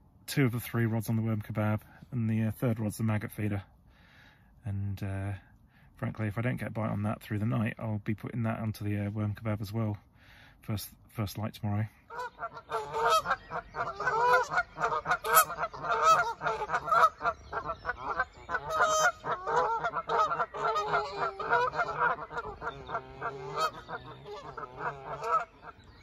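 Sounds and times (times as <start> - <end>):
geese honking: 12.0 - 26.0.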